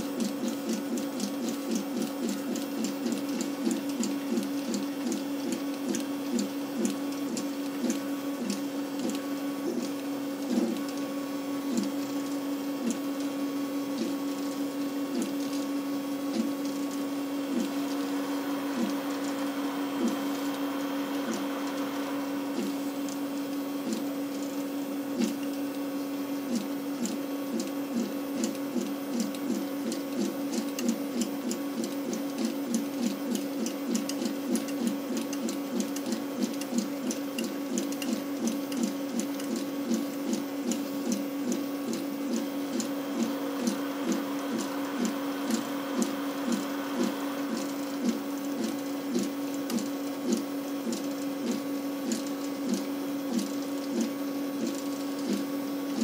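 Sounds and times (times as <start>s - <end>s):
stepper motors humming: 0.6s - 25.5s, 41.1s - 55.4s.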